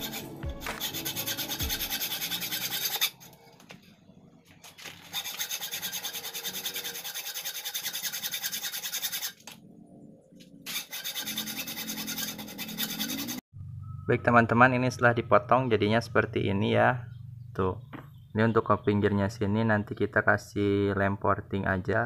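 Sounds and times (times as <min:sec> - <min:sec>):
hacksaw cutting metal: 0:00.0 - 0:03.4, 0:05.0 - 0:09.5, 0:10.6 - 0:13.4.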